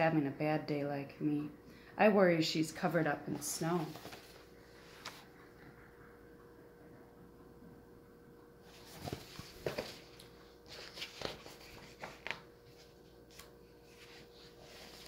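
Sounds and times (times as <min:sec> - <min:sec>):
faint steady hum: 0:00.0 - 0:15.0
book pages rustling: 0:03.4 - 0:05.3, 0:08.7 - 0:15.0.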